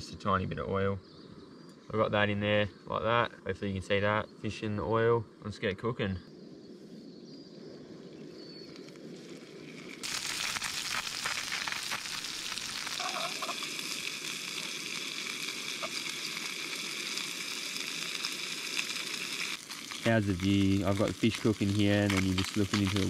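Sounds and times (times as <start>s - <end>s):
fish sizzling in a pan: 8.6s - 23.0s.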